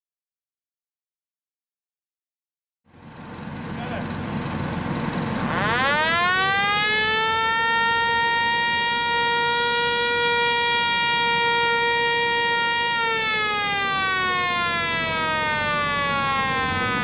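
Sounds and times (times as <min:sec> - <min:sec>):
air blower whine: 0:02.9 - 0:17.0.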